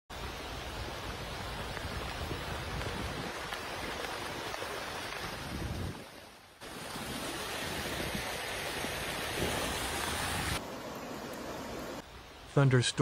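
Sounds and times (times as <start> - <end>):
heavy rain on water: 0.1 - 12.0
wind on microphone: 1.0 - 3.5.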